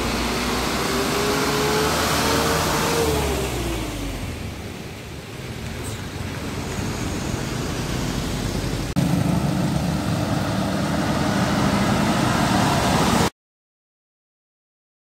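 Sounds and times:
road traffic: 0.0 - 13.3
motorcycle engine rumble: 2.4 - 13.1.

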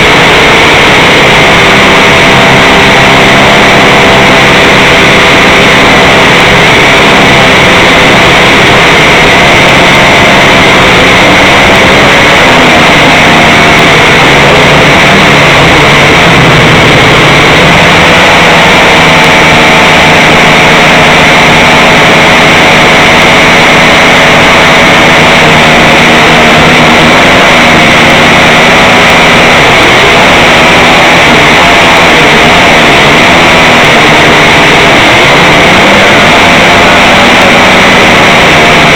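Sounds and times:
drone motors and propellers: 0.0 - 38.9.

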